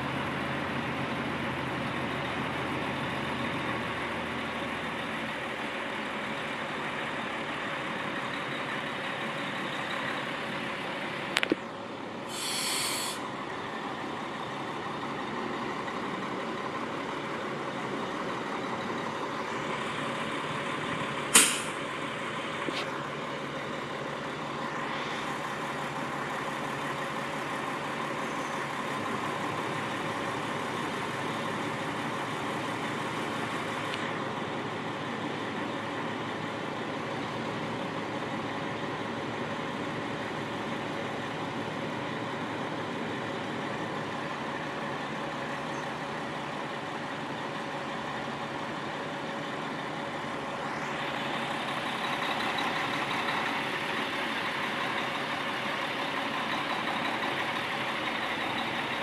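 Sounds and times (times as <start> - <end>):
diesel truck engine running: 0.0 - 59.0
click and air hiss: 12.3 - 13.2, 21.3 - 21.8
air brake pop: 21.3 - 21.8.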